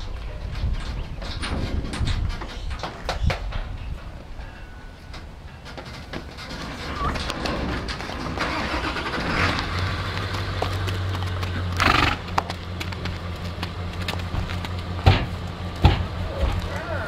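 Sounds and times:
horse hooves stepping: 0.0s - 17.0s
low engine hum: 7.0s - 17.0s.

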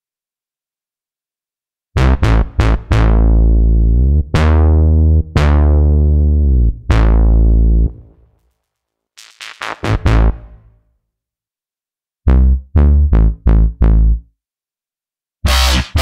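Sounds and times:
synth bass notes: 2.0s - 8.2s, 9.4s - 10.7s, 12.3s - 14.3s, 15.5s - 16.0s.

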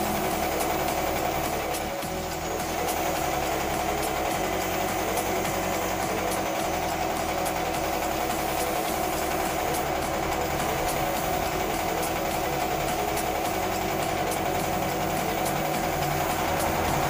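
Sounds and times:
air compressor running: 0.0s - 17.0s
spray gun hissing: 0.0s - 17.0s.

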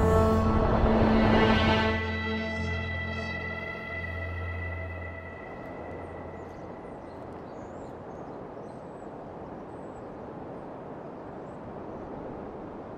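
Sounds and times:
low music drone: 0.0s - 7.9s.

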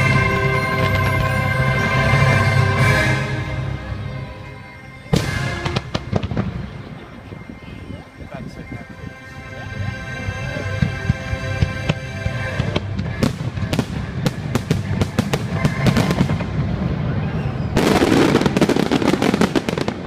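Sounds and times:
show music: 0.0s - 20.0s
fireworks bangs: 5.1s - 7.2s, 10.7s - 20.0s.

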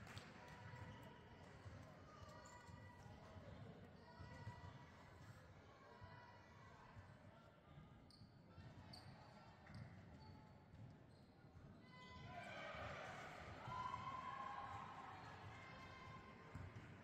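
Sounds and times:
sneaker squeaks: 9.7s - 12.2s.

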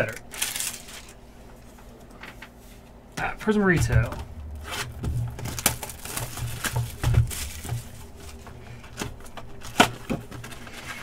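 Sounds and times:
foil pack tearing and crinkling: 0.0s - 1.2s, 4.4s - 11.0s.

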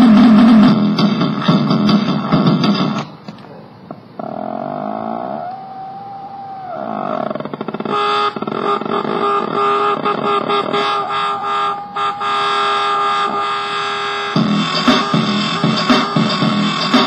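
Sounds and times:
stuttering electronic buzz: 7.6s - 17.0s
warbling electronic tone: 7.7s - 17.0s.

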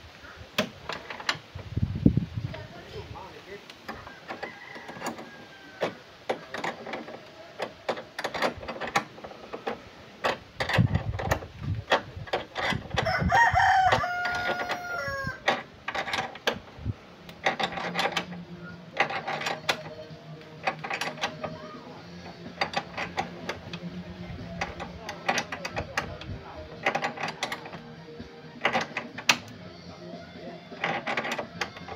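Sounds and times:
rooster crowing: 4.0s - 6.1s, 13.0s - 15.5s.

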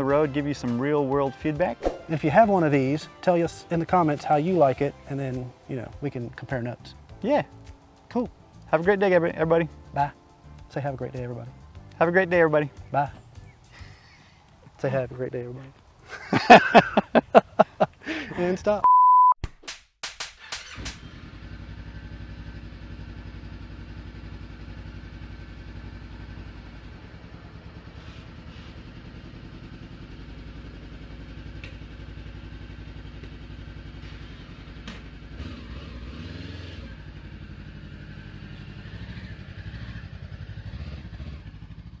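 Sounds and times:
motorcycle engine idling: 20.6s - 42.0s.

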